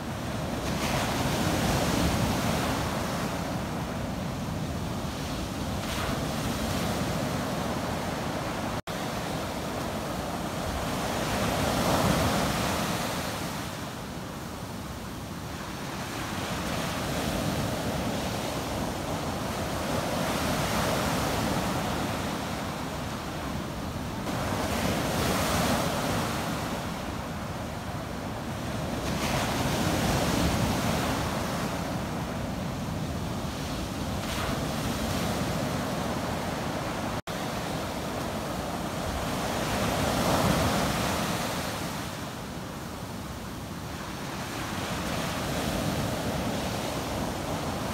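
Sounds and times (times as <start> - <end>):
surf breaking on a beach: 0.0 - 47.9.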